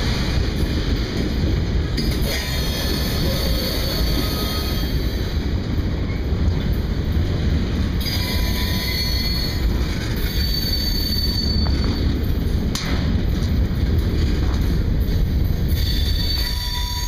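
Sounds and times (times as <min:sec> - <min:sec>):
train wheels rumbling on rails: 0:00.0 - 0:17.0
high-pitched wheel squeal: 0:02.3 - 0:05.0, 0:08.0 - 0:12.1, 0:15.7 - 0:17.0.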